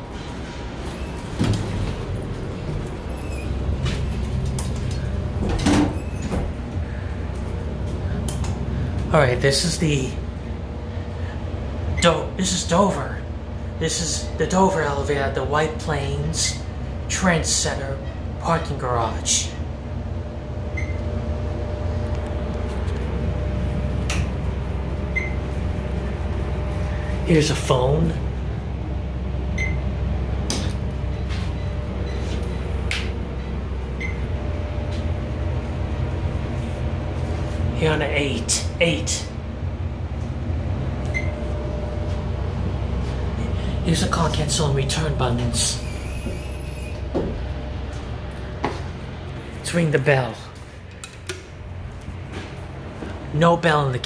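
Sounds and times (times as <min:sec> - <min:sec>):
elevator doors sliding shut: 0:00.0 - 0:09.1, 0:29.6 - 0:37.2, 0:40.2 - 0:48.5
faint hum: 0:00.0 - 0:54.0
low steady rumble: 0:00.0 - 0:54.0.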